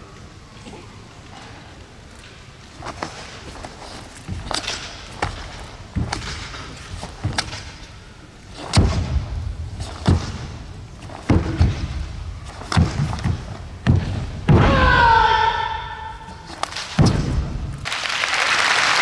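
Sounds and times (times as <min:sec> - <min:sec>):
feet stamping on mat: 0:08.6 - 0:14.8
loud martial arts shout: 0:14.5 - 0:16.5.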